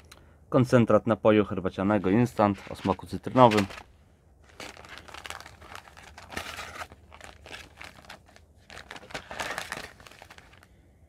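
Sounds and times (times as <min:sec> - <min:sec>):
wrappers crinkling and rustling: 0:02.0 - 0:10.7.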